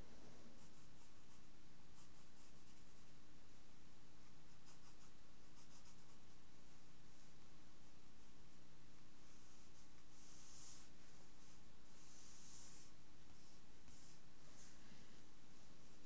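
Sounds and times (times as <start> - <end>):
steady low hum: 0.0 - 16.0
pencil scratching on paper: 0.4 - 3.0, 4.2 - 6.4, 9.3 - 15.0.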